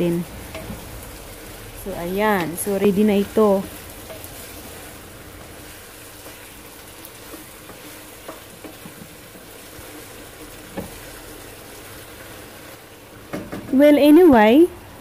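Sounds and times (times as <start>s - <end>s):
food sizzling in a wok: 0.0s - 15.0s
spatula knocking pan: 3.2s - 9.2s, 10.6s - 11.2s, 13.3s - 13.8s.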